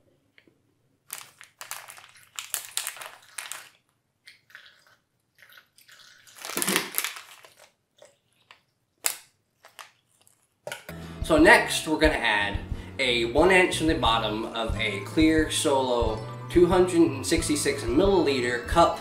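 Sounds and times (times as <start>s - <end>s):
person crunching chips: 1.0s - 10.6s.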